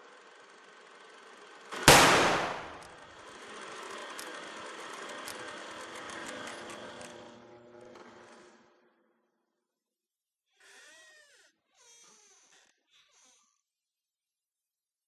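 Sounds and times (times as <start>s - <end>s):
loud gunshot: 1.9s - 3.0s.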